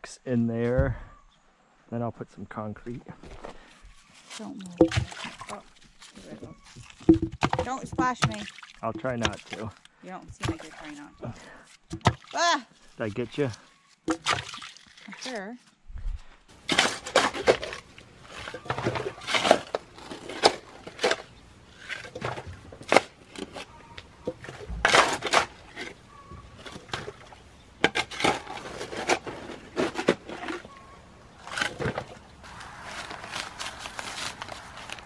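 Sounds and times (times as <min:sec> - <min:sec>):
shovel scraping into soil: 0:27.9 - 0:30.8.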